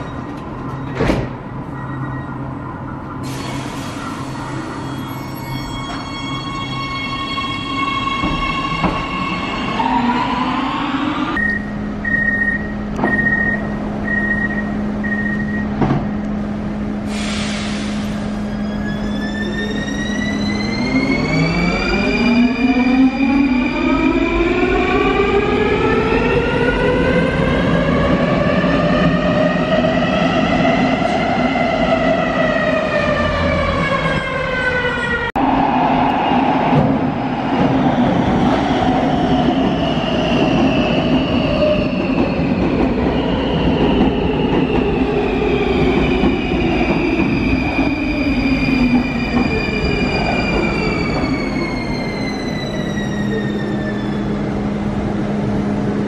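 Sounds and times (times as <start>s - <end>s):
air hissing: 17.0s - 18.4s.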